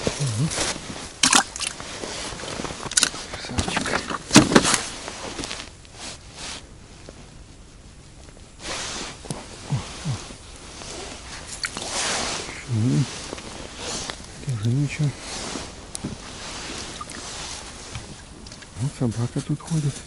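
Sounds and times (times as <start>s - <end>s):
rustling: 0.0s - 20.0s.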